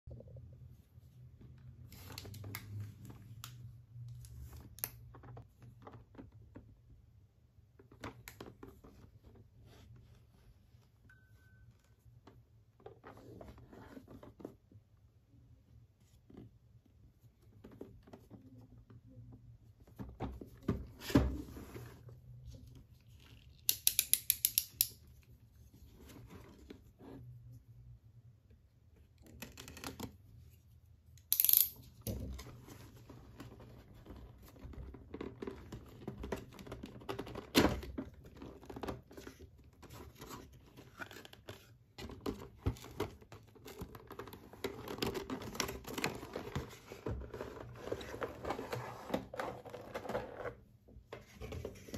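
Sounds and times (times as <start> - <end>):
cardboard rubbing and scraping: 45.4 - 51.9.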